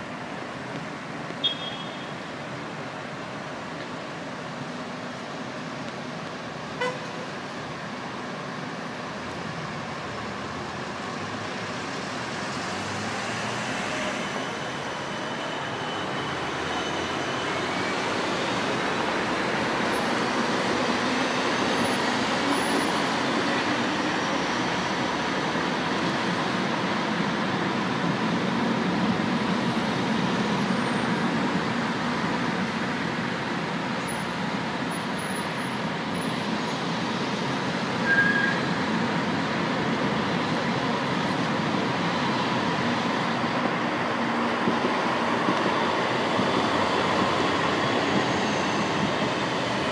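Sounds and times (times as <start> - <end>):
car traffic: 0.0 - 49.9
tram rolling past: 2.1 - 49.9.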